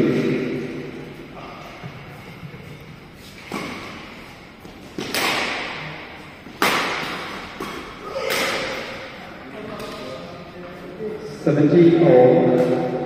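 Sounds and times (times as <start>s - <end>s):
rackets hitting shuttlecock: 3.2s - 10.1s, 12.4s - 13.0s.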